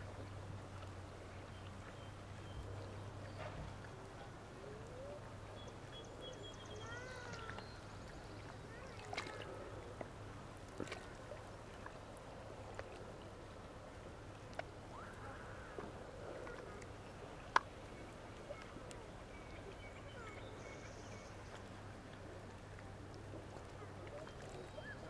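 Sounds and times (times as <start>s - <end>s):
distant voices calling out: 3.4s - 10.2s, 14.8s - 20.8s.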